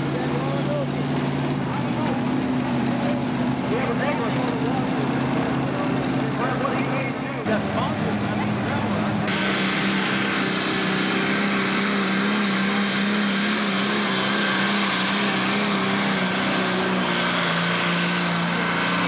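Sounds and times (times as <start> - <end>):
diesel engine running flat out: 0.0 - 19.0.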